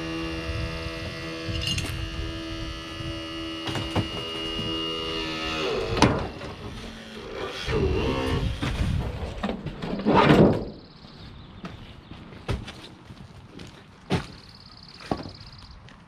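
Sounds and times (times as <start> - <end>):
tool motor humming: 0.0 - 8.7
loud metal crunch: 0.0 - 10.9.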